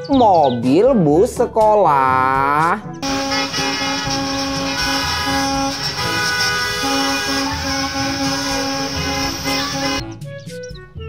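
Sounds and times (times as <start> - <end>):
bus horns honking: 3.0 - 10.0
tyres hissing on wet road: 3.0 - 10.0.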